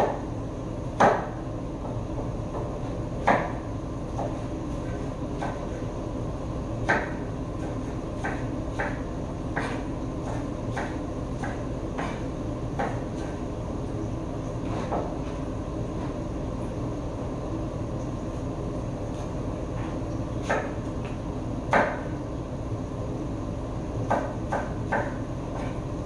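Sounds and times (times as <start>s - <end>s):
steady background hum: 0.0s - 26.0s
knife chopping on wooden board: 1.0s - 5.8s, 6.8s - 13.4s, 14.6s - 15.4s, 19.8s - 20.8s, 21.7s - 22.1s, 24.0s - 25.8s.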